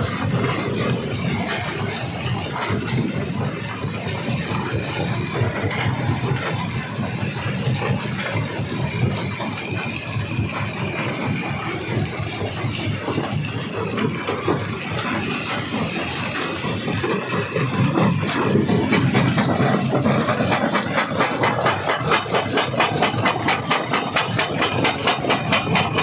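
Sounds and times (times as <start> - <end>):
irregular clatter: 0.0 - 26.0
stone crusher running: 0.0 - 26.0.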